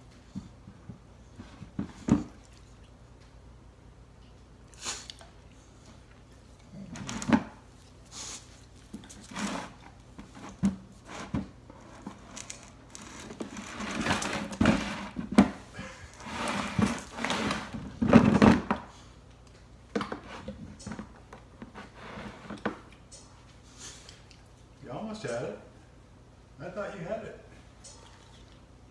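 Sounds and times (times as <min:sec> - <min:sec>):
knocks and scrapes on plastic bin: 0:13.5 - 0:15.6, 0:16.2 - 0:18.8.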